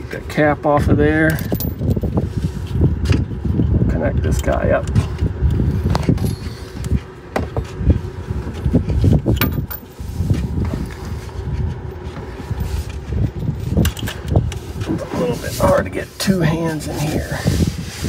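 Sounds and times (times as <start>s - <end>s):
gloved hands rubbing and rustling: 5.6s - 18.0s
metal clicks and knocks: 9.4s - 9.9s.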